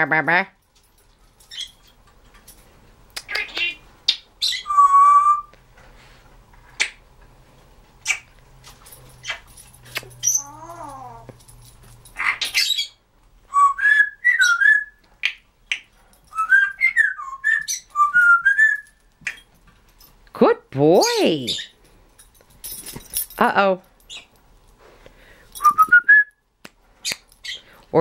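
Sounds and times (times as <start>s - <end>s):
parrot clicking: 3.1s - 4.2s
parrot whistling: 4.4s - 5.5s, 13.5s - 15.0s, 16.3s - 19.0s.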